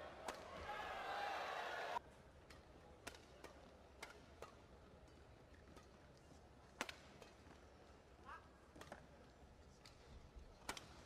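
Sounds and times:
rackets hitting shuttlecock: 0.2 - 0.7, 2.4 - 6.0, 6.7 - 7.6, 10.6 - 11.0.

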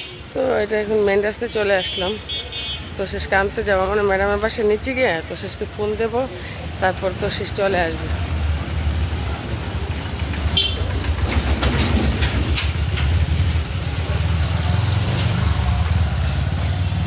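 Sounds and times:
street traffic noise: 0.0 - 17.0
bus engine rumble passing: 2.9 - 17.0.

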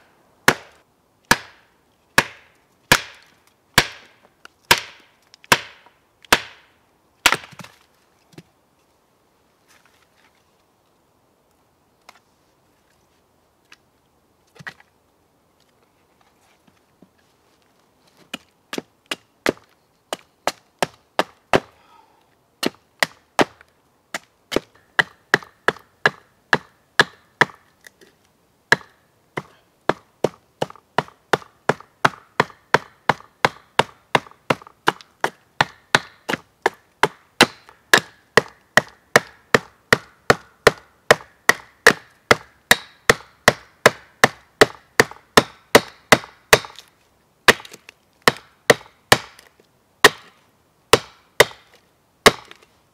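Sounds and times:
hatchet chopping wood: 0.5 - 7.8, 18.7 - 21.8, 22.6 - 27.6, 28.7 - 46.9, 47.5 - 52.6.

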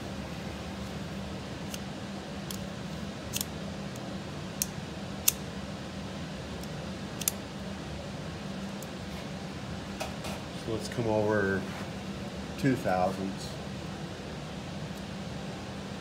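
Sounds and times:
air conditioner fan humming: 0.0 - 16.0
sharp light clicks: 3.3 - 3.5, 4.6 - 5.4, 6.6 - 7.4.

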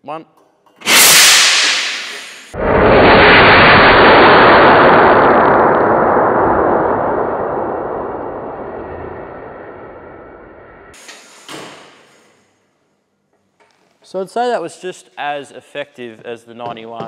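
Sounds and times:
slowed-down explosion roar: 0.9 - 11.0.

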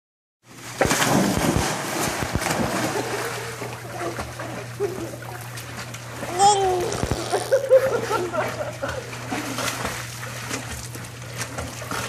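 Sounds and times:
water sloshing and splashing: 0.5 - 12.0
big splash into pool: 0.6 - 4.5.

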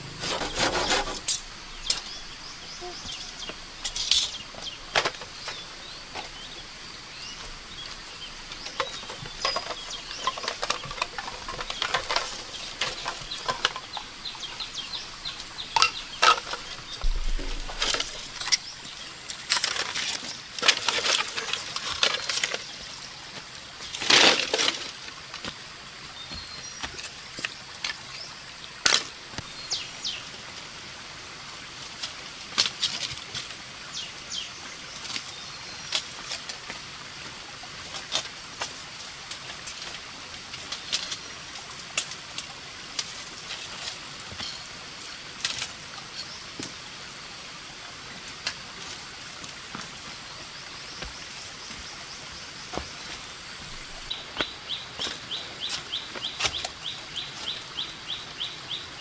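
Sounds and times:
small stream rushing: 0.0 - 59.0
bamboo clacking together: 8.5 - 23.0.

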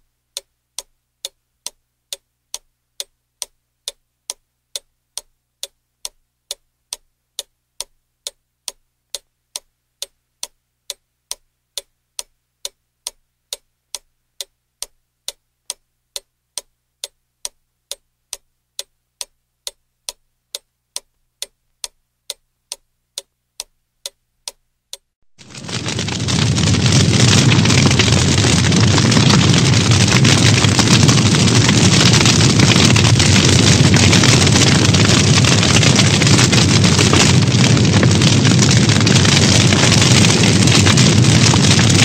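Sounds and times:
clock ticking: 0.0 - 25.1.

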